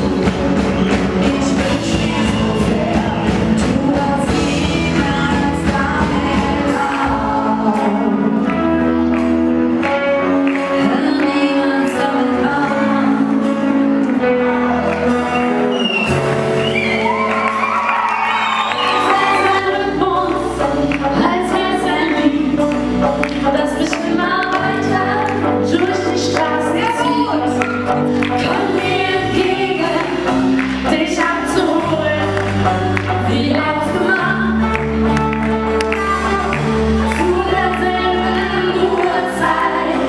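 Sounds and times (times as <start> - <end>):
women singing: 0.0 - 8.9, 10.5 - 14.8, 18.6 - 34.9, 35.8 - 40.0
drum kit beat: 0.0 - 11.5
electric guitars: 0.0 - 40.0
keyboard: 0.0 - 40.0.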